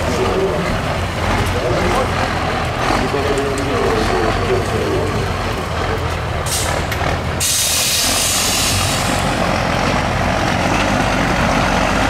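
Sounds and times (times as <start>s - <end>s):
diesel truck engine running: 0.0s - 12.0s
loud hiss: 7.4s - 9.2s.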